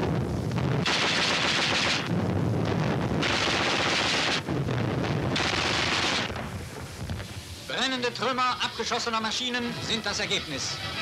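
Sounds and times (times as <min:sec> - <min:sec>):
anti-aircraft guns firing: 0:00.7 - 0:02.2, 0:02.8 - 0:06.6.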